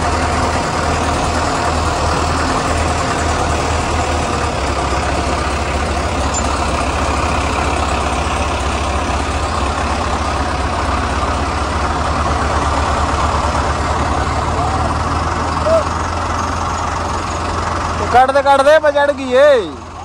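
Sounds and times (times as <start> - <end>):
tractor diesel engine running: 0.0 - 20.0.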